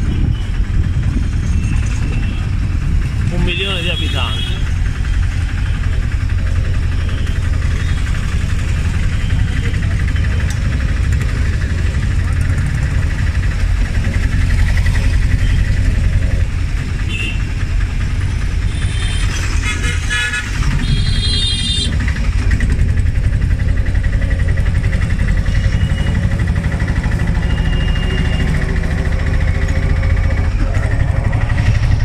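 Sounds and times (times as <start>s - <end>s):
vehicle engine running: 0.0s - 32.0s
car horns tooting: 3.6s - 4.7s, 18.7s - 22.0s.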